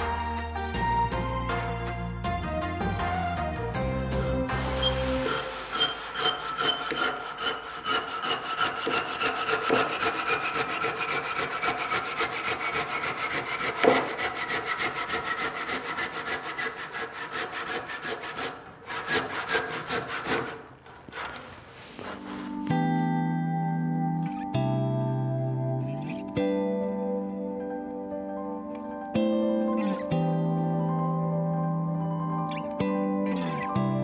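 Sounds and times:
handsaw cutting wood: 4.2 - 22.9.

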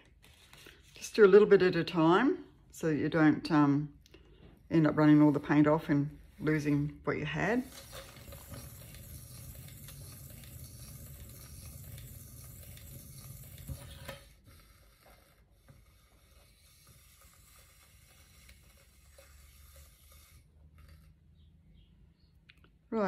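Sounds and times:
turntable whirring: 7.6 - 14.5.

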